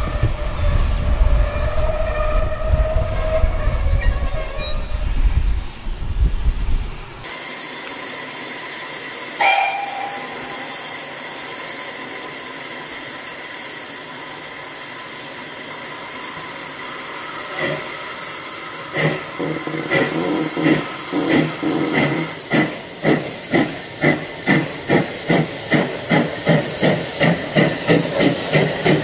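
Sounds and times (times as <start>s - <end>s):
steam hissing from locomotive: 7.2s - 29.0s.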